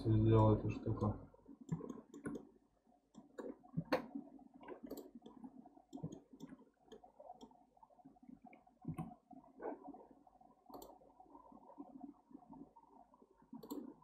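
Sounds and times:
computer mouse clicks: 0.4s - 2.5s, 3.1s - 7.6s, 10.7s - 11.0s, 13.6s - 13.9s.

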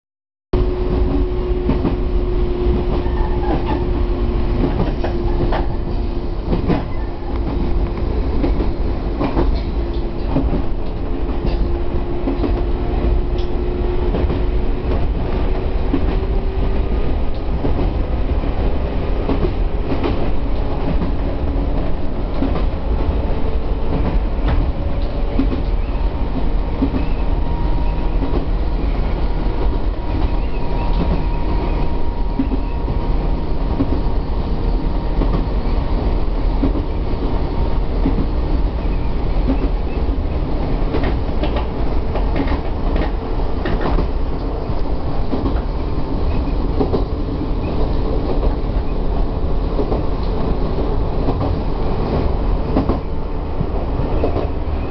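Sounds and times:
train wheels rumbling on rail: 0.6s - 54.9s
wheels clicking over rail joints: 38.0s - 54.9s.

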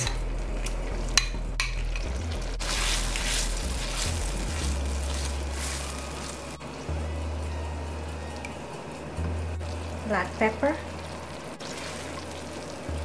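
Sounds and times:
juice sizzling in a hot pan: 0.0s - 13.0s
spoon clinking: 1.2s - 2.0s.

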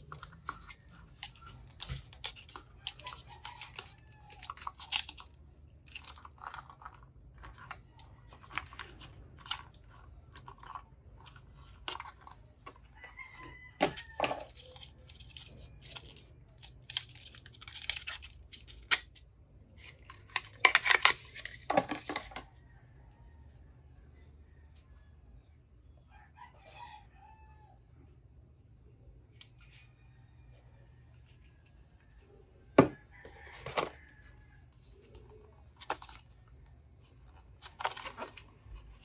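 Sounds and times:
packaging crackling and tearing: 0.0s - 19.2s, 33.4s - 39.0s.

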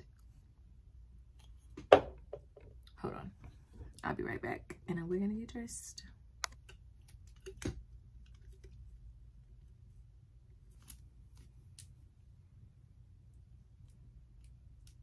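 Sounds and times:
low steady hum: 0.0s - 15.0s
small clicks and taps: 6.4s - 8.8s.

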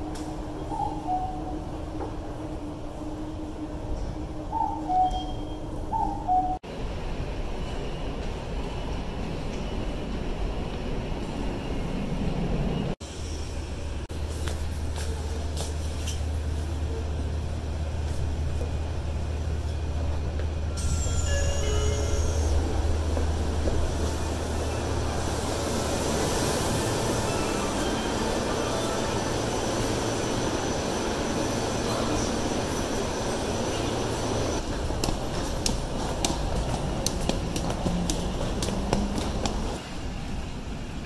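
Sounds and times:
busy station platform noise: 0.0s - 41.0s
subway train rumble: 0.0s - 41.0s
train brakes squealing: 4.6s - 6.6s, 12.7s - 14.0s, 20.7s - 22.9s, 26.1s - 34.6s.

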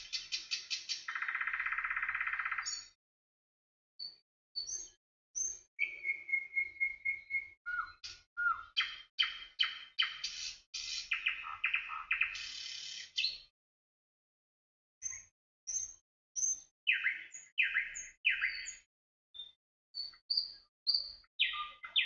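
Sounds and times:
songbird chirps and trills: 0.0s - 3.0s, 4.0s - 13.5s, 15.0s - 22.0s.

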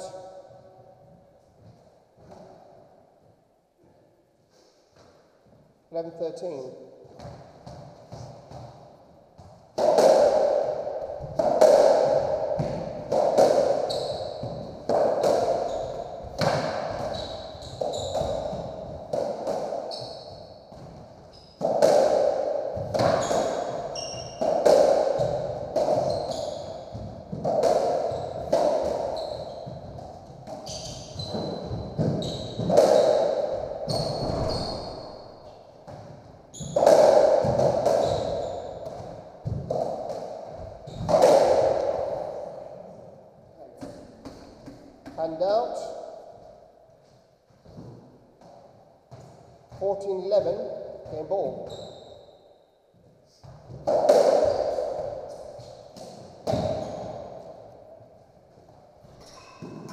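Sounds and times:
ball struck by rackets: 9.4s - 20.0s, 20.7s - 34.8s, 35.8s - 42.7s, 53.4s - 57.8s
shoes squeaking on court: 13.8s - 14.9s, 15.5s - 18.9s, 19.8s - 21.6s, 23.0s - 24.4s, 25.2s - 27.4s, 28.0s - 29.9s, 30.5s - 36.9s, 37.9s - 39.1s, 51.1s - 52.4s, 56.5s - 57.3s, 59.0s - 59.9s.

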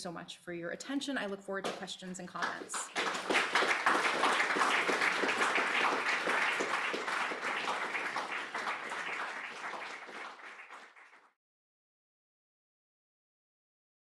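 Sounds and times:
audience applauding: 2.4s - 11.4s.

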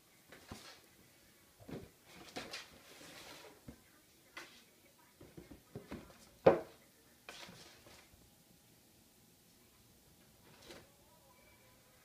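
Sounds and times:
cardboard scraping on tile floor: 1.7s - 3.7s, 7.3s - 8.1s.

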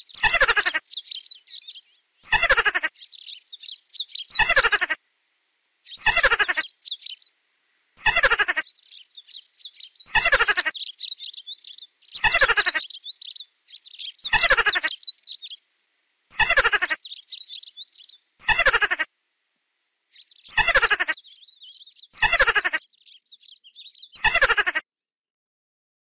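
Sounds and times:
squeaky mouse call: 0.0s - 1.5s, 2.2s - 5.0s, 5.9s - 7.2s, 8.0s - 11.4s, 12.1s - 13.4s, 14.0s - 15.5s, 16.4s - 17.8s, 20.4s - 22.9s
small birds chirping: 0.0s - 5.0s, 5.7s - 19.1s, 20.1s - 24.8s.

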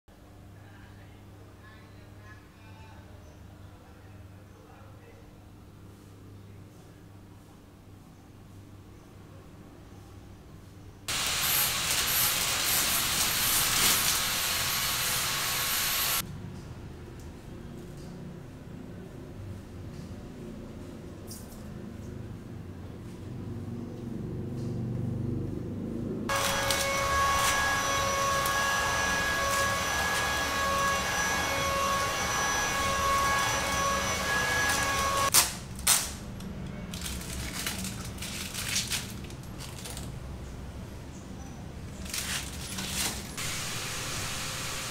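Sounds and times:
plastic film being peeled off: 11.1s - 14.9s, 26.3s - 30.4s, 34.6s - 36.2s, 36.9s - 40.1s, 42.0s - 43.4s
hiss: 11.1s - 16.2s, 43.4s - 44.9s
motor whining: 11.1s - 16.2s, 26.3s - 35.3s.

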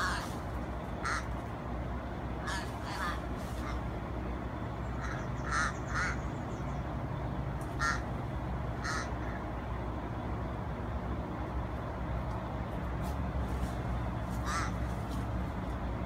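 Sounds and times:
crow cawing harshly: 0.0s - 0.4s, 1.0s - 1.4s, 2.4s - 3.8s, 5.0s - 6.2s, 7.7s - 8.1s, 8.8s - 9.5s, 14.4s - 14.9s.

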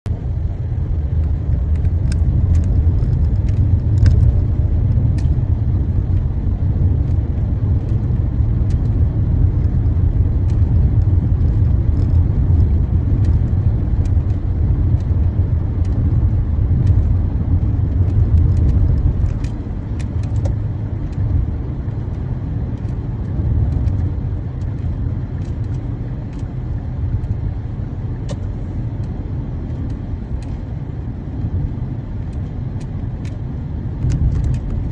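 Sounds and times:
car engine and tyre rumble: 0.0s - 34.9s.

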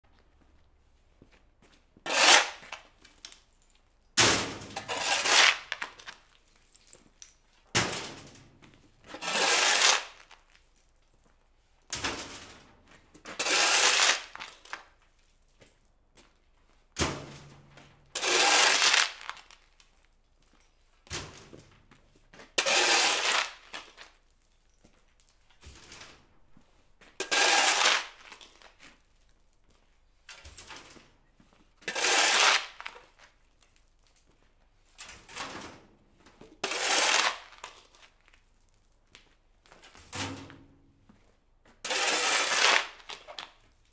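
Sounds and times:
shovel scraping dirt on concrete: 2.0s - 3.0s, 4.2s - 6.2s, 9.0s - 10.5s, 12.0s - 14.9s, 18.1s - 19.5s, 22.4s - 24.2s, 27.0s - 29.0s, 31.6s - 33.4s, 36.5s - 38.1s, 41.7s - 43.6s.

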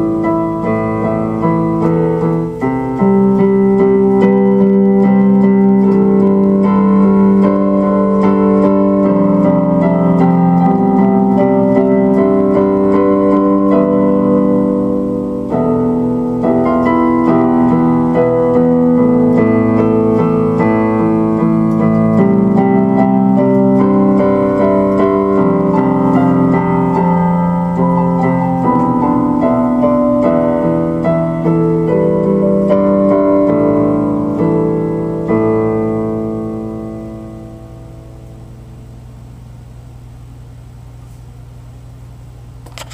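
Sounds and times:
slow piano chords: 0.0s - 41.6s.

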